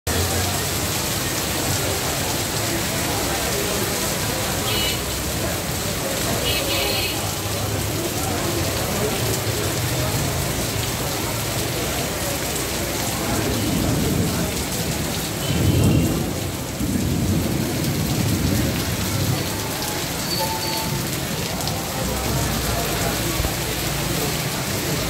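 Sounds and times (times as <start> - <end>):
heavy rain pouring: 0.0 - 25.0
low rolling thunder: 13.3 - 19.6.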